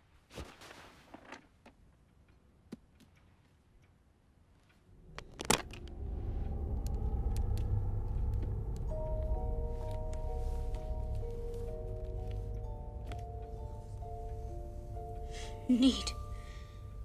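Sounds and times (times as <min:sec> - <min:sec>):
low rumbling swell: 0:04.8 - 0:17.0.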